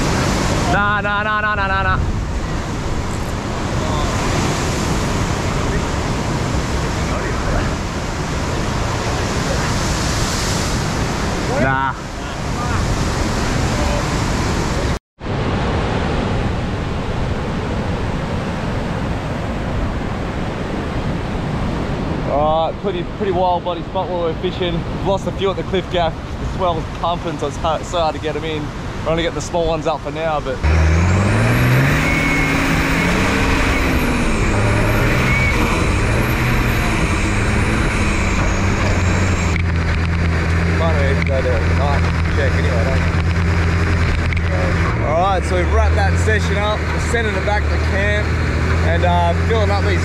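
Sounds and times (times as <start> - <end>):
ocean waves breaking on rocks: 0.0 - 30.6
wind noise: 0.0 - 50.0
vehicle engine driving: 30.2 - 50.0.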